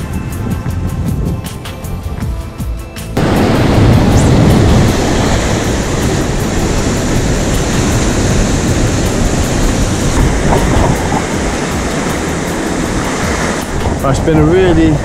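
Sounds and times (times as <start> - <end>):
wind on microphone: 0.0 - 2.1, 3.2 - 15.0
surf roaring on rocky shore: 3.2 - 15.0.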